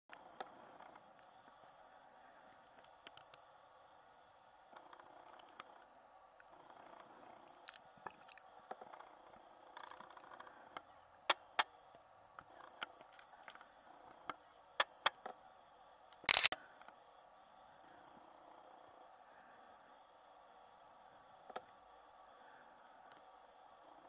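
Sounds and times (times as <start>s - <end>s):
faint steady hiss: 0.1s - 24.0s.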